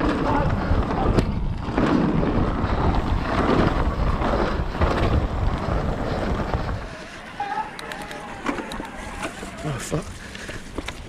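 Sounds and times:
wind buffeting microphone: 0:00.0 - 0:07.3
bike rumbling and clattering on trail: 0:00.0 - 0:11.0.

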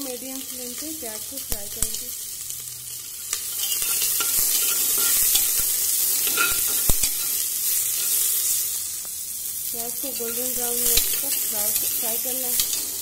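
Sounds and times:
onions sizzling in oil: 0:00.0 - 0:13.0
spatula scraping a pot: 0:03.4 - 0:08.4.

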